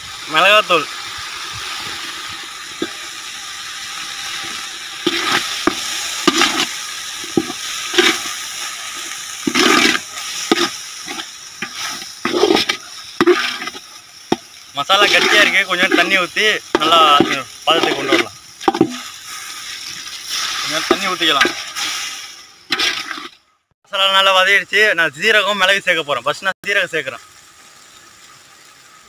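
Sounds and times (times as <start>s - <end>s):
sizzling in oil: 0.0s - 23.4s, 24.0s - 29.0s
ladle scraping metal pot: 4.3s - 19.1s, 22.7s - 23.4s.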